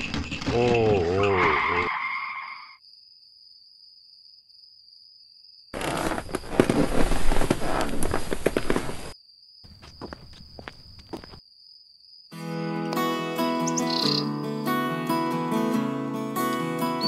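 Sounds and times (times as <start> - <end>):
clatter of hooves: 0.0 - 1.6.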